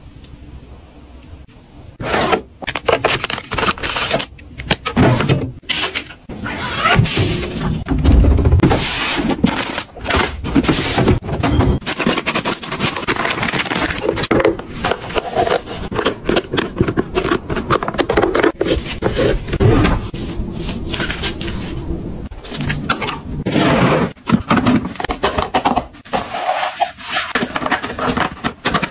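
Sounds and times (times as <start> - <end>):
plastic trays scraping and clicking: 7.1 - 20.1, 22.4 - 28.9.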